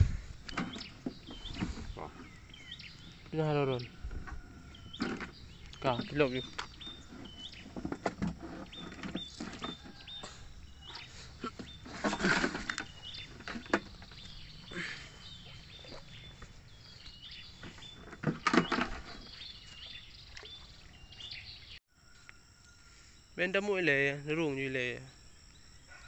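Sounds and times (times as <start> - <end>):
handling noise: 3.9 - 10.3, 11.4 - 20.0
footsteps on dirt: 12.9 - 18.0.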